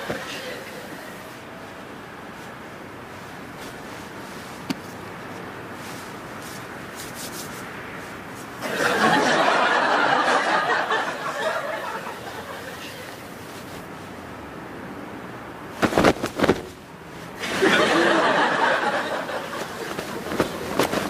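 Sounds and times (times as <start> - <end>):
audience laughter: 8.6 - 13.2, 17.4 - 19.9.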